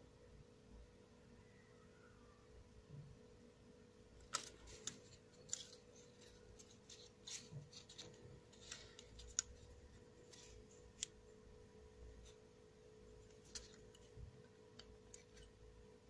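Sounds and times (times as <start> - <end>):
plastic handling clicks and rubs: 4.2 - 11.2, 13.1 - 15.7.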